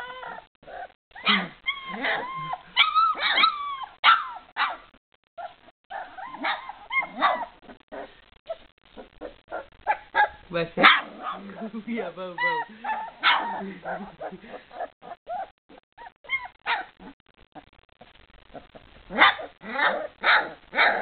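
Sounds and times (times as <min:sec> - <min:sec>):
puppies yipping and whining: 0:00.0 - 0:04.8, 0:05.4 - 0:10.4, 0:12.4 - 0:17.2.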